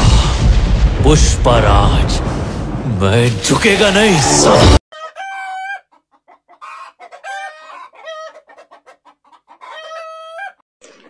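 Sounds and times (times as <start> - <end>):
voice and music: 0.0 - 4.8
roosters crowing: 4.9 - 10.6.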